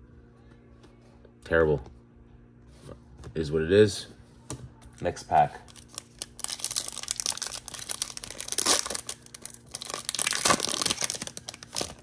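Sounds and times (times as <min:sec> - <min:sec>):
wrapper tearing and crinkling: 0:05.7 - 0:12.0.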